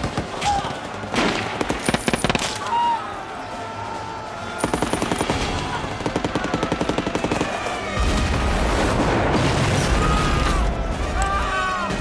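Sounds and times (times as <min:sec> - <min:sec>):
rapid machine-gun fire: 0:04.6 - 0:09.8.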